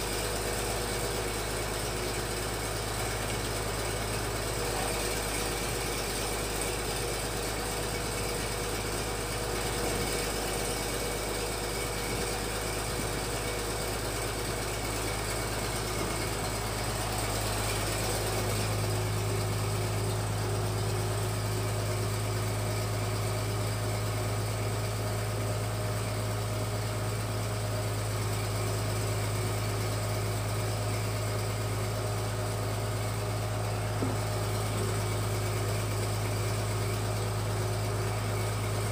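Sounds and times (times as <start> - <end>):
engine low drone: 0.0 - 38.9.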